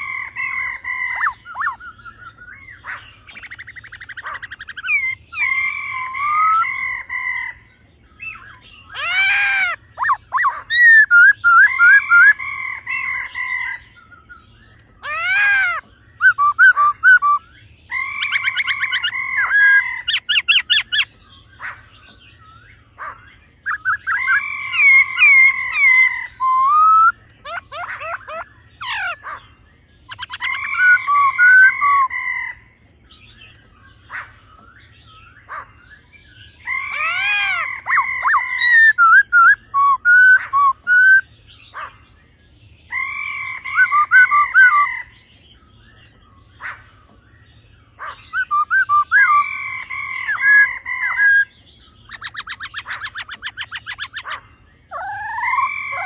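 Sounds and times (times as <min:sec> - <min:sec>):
bird singing whistled phrases: 0:00.5 - 0:06.8, 0:08.2 - 0:12.4, 0:14.0 - 0:21.4, 0:23.6 - 0:29.2, 0:30.1 - 0:32.1, 0:36.0 - 0:41.3, 0:42.9 - 0:45.1, 0:48.3 - 0:56.0.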